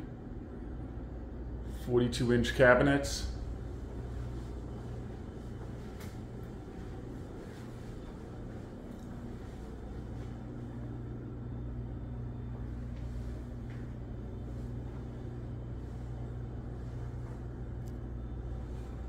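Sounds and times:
household machinery humming: 0:00.0 - 0:19.0.

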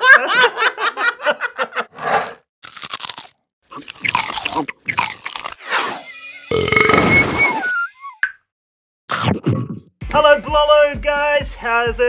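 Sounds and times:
apple biting crunches: 0:02.6 - 0:05.6.

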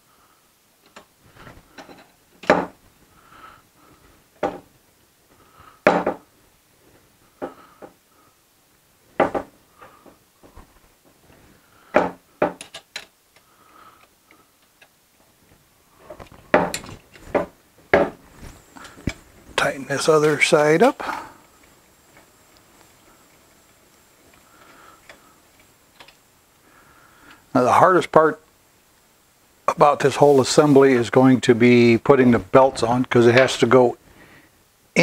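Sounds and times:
quiet clicking: 0:21.1 - 0:26.2.

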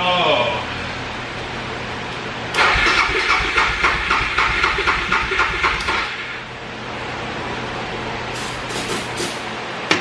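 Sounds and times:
motorcycle engine revving: 0:02.6 - 0:06.2.

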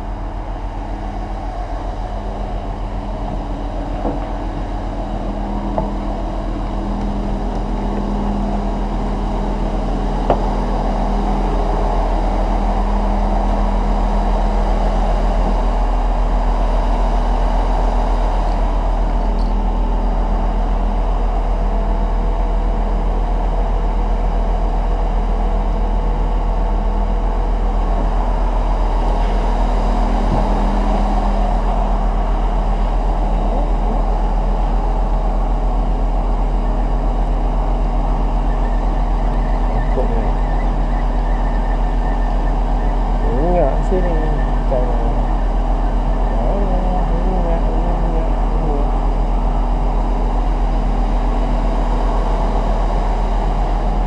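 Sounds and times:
engine drone: 0:00.0 - 0:54.0.

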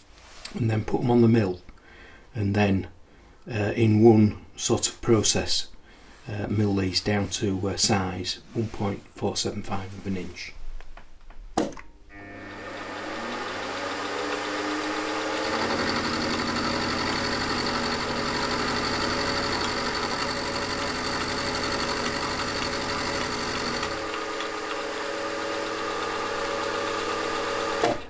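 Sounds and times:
milling machine motor whine: 0:12.1 - 0:28.0.

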